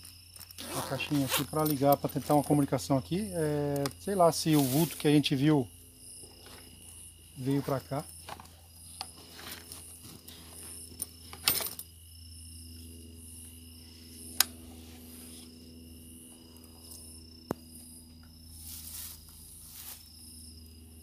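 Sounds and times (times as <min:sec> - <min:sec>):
crickets chirping: 0:00.0 - 0:21.0.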